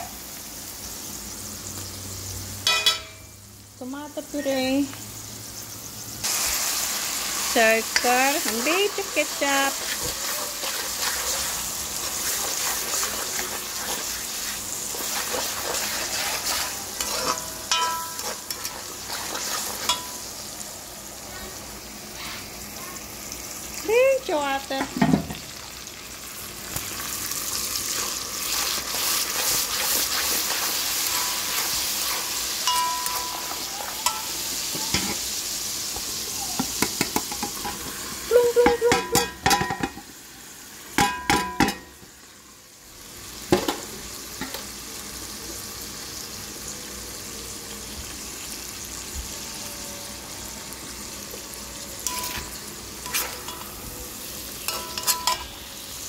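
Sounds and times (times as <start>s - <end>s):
sauce sizzling in a wok: 0.0s - 56.0s
spoon clinking on wok: 2.6s - 3.4s, 17.0s - 18.4s, 19.8s - 20.3s, 32.6s - 35.2s, 38.6s - 40.0s, 41.0s - 42.0s, 52.0s - 53.9s, 54.6s - 55.6s
metal spoon scraping a wok: 9.3s - 20.3s, 27.9s - 35.2s, 52.0s - 53.8s, 54.6s - 55.6s.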